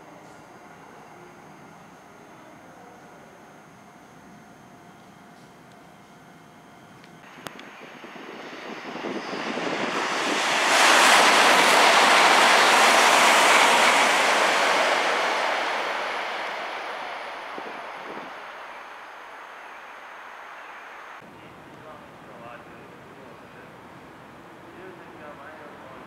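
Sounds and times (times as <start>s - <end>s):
high-speed train passing: 6.7s - 21.2s, 21.8s - 26.0s.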